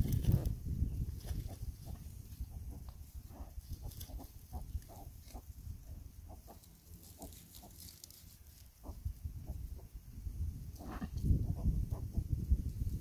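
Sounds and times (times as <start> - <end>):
pigs grunting: 10.8 - 11.2.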